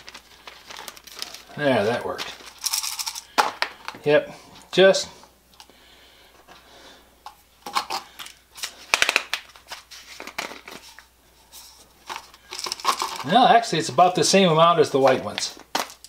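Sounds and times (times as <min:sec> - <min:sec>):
plastic pill bottles clicking and rattling: 0:00.0 - 0:04.1, 0:07.2 - 0:11.0, 0:12.0 - 0:14.1, 0:15.0 - 0:16.0.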